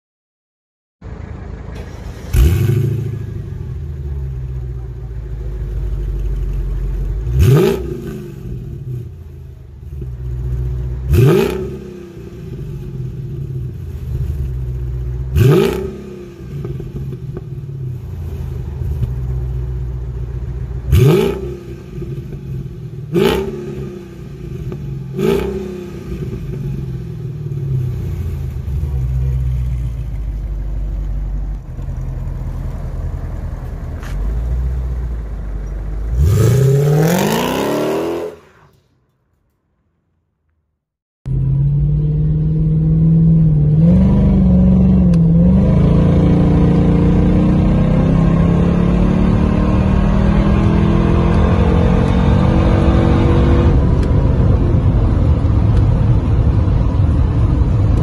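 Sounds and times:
car engine idling and revving: 0:01.0 - 0:40.2, 0:41.2 - 0:58.0.

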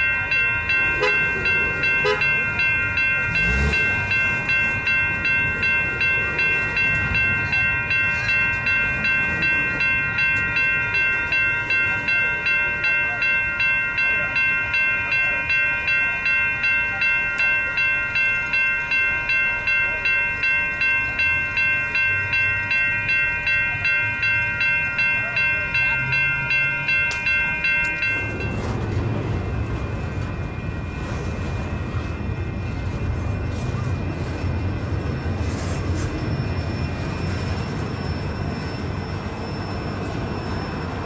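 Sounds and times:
crossing warning bell ringing: 0:00.0 - 0:41.0
freight cars rumbling past: 0:00.1 - 0:13.2.

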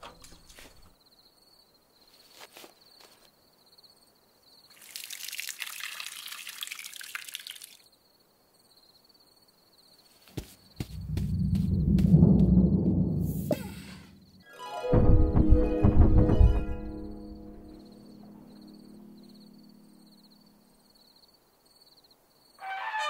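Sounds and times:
low drum-like swell: 0:10.9 - 0:20.0.

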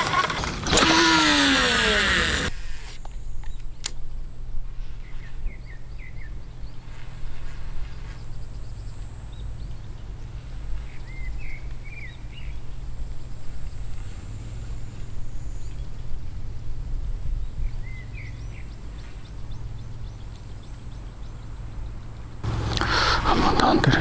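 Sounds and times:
fishing reel spool whine: 0:00.0 - 0:03.2.

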